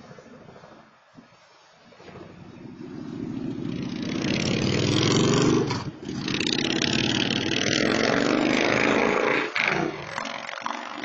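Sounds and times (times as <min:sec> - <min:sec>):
vehicle engine accelerating: 0:02.6 - 0:09.6.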